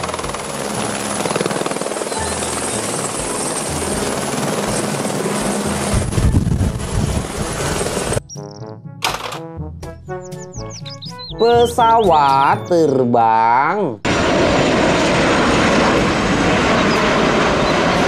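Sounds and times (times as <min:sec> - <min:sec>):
helicopter rotor chop: 0:00.0 - 0:08.2, 0:14.1 - 0:18.0
helicopter turbine noise: 0:00.0 - 0:08.6, 0:14.0 - 0:18.0.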